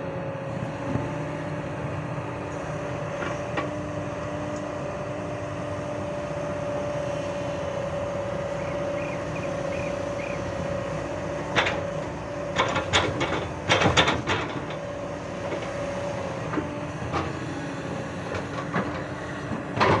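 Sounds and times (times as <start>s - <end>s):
excavator engine whining: 0.0s - 20.0s.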